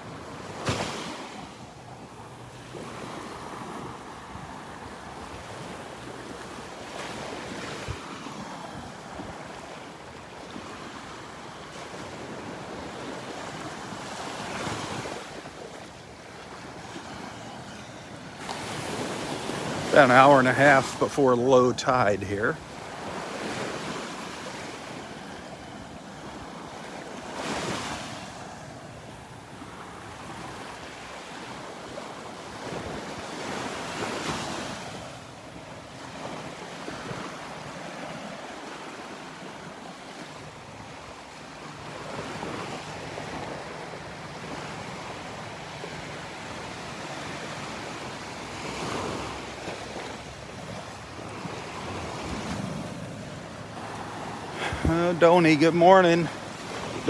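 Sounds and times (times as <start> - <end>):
waves breaking on beach: 0.0 - 57.0
wind buffeting microphone: 54.6 - 55.1.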